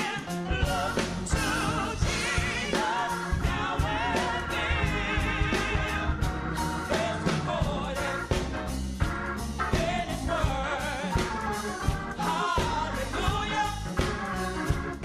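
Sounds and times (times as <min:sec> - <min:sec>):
women singing together: 0:00.0 - 0:08.6, 0:12.1 - 0:13.9
amplified instrumental backing: 0:00.0 - 0:15.0.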